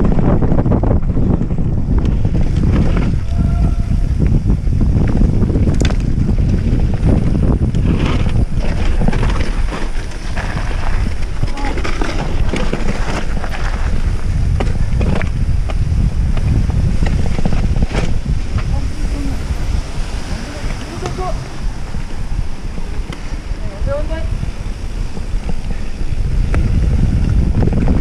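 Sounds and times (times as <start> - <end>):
bike clicks and rattles: 0.0 - 19.3
wind buffeting microphone: 0.0 - 28.0.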